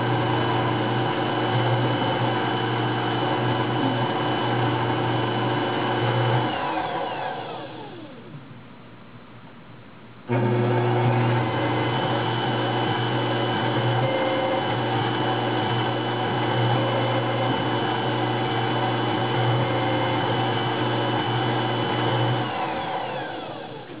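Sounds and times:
milling machine spindle whine: 0.0s - 8.4s, 10.3s - 24.0s
axis drives moving: 6.0s - 8.4s.

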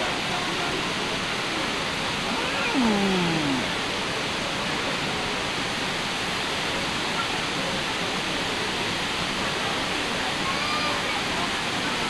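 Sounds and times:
waterfall roaring: 2.1s - 4.6s.

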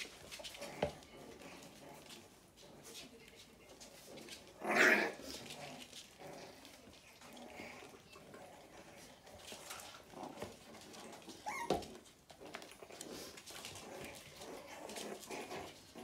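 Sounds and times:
puppies whimpering and yipping: 11.0s - 12.7s.

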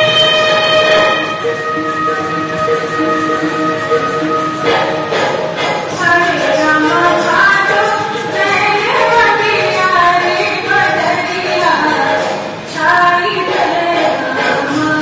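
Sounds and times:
woman singing folk song: 6.0s - 15.0s.

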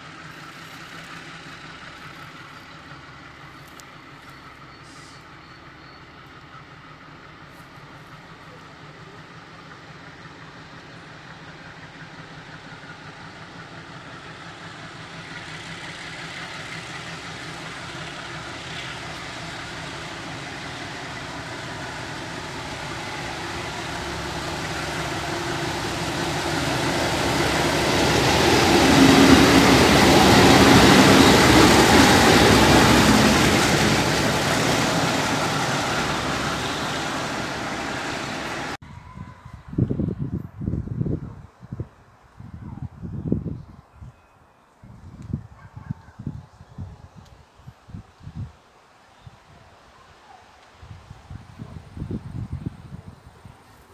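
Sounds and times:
freight train locomotive engine: 0.0s - 40.7s.

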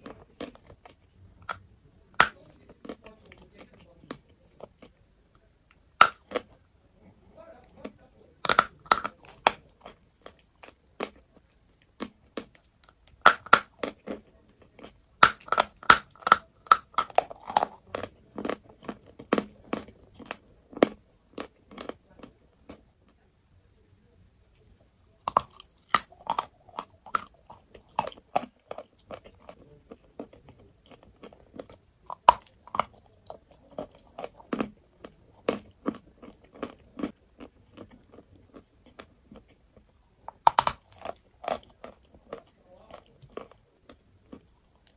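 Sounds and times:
chalk being chewed and crunched: 7.7s - 23.2s, 25.2s - 44.9s.

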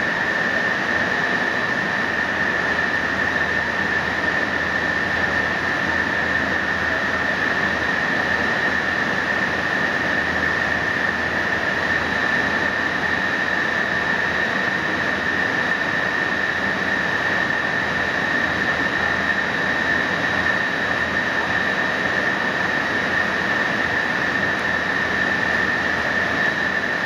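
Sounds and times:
high-pitched machinery whine: 0.0s - 27.0s.

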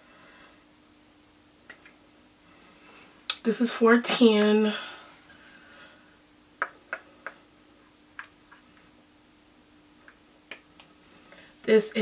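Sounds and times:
makeup compacts clicking and tapping: 6.6s - 7.4s.

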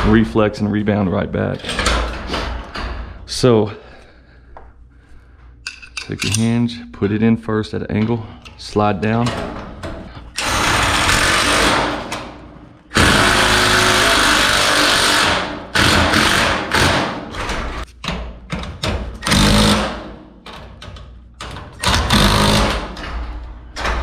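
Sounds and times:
impact driver hammering: 12.9s - 17.4s, 18.0s - 20.2s, 21.8s - 23.1s.

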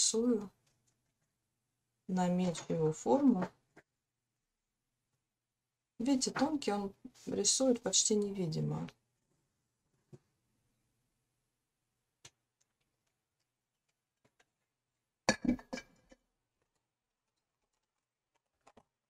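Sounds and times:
knocks and handling noise: 15.3s - 16.8s.

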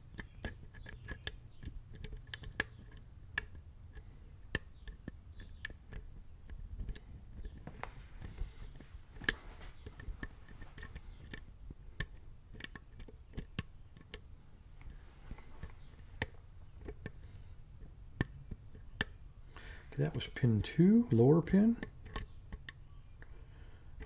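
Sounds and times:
lock pick clicking in lock: 12.0s - 14.3s, 21.8s - 23.3s.

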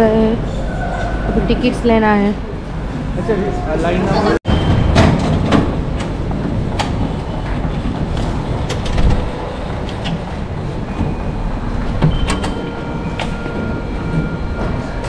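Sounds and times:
steady low rumble: 4.4s - 15.0s.

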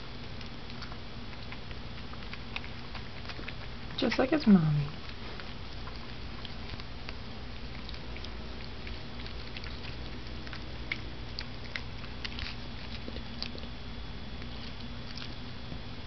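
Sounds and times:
dog crunching kibble: 0.0s - 15.9s
low background hum: 0.0s - 16.0s.

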